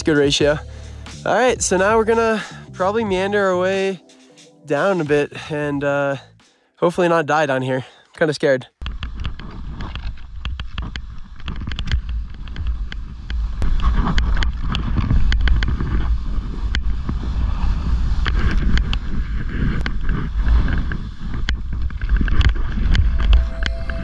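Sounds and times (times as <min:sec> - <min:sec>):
snowboard scraping on snow: 0:12.8 - 0:23.6.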